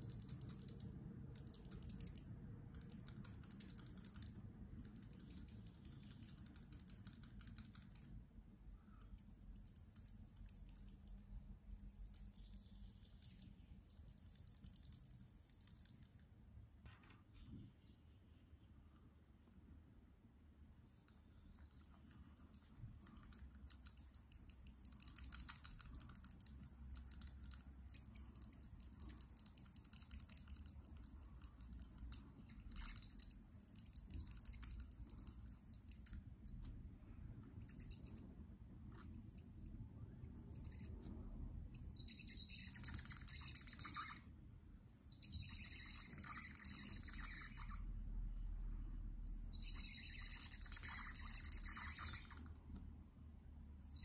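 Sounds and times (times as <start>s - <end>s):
marker nib scratching paper: 0.0s - 16.3s, 20.8s - 36.8s, 37.4s - 41.2s, 41.8s - 44.3s, 45.0s - 47.9s, 49.2s - 52.6s.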